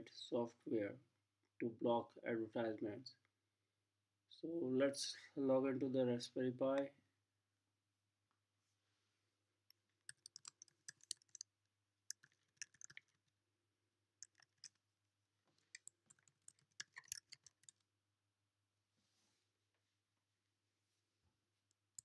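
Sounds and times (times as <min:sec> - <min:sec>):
keyboard keys clicking: 0:10.1 - 0:11.4.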